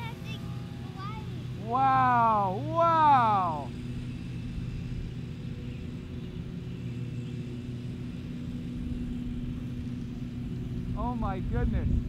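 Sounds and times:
rc plane motor and propeller drone: 0:00.0 - 0:12.0
wind rumble on microphone: 0:08.4 - 0:12.0.

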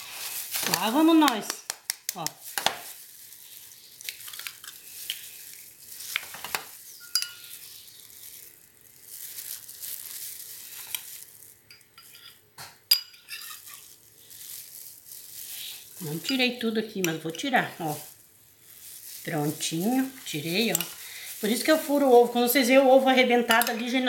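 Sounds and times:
glass ringing: 0:07.0 - 0:07.5
sharp glass clink: 0:07.0 - 0:07.5
spoon against glass: 0:07.0 - 0:07.6, 0:11.7 - 0:13.8.

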